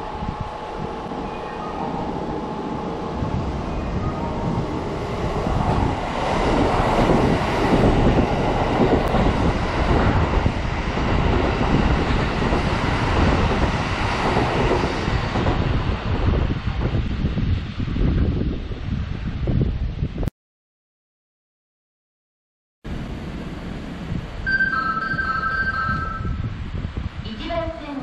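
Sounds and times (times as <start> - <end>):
train passing through station: 0.0 - 20.1, 22.9 - 28.0.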